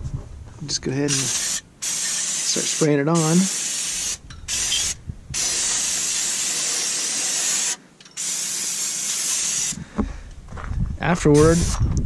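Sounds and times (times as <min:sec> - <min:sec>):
aerosol can spraying: 0:01.1 - 0:09.8, 0:11.5 - 0:11.8.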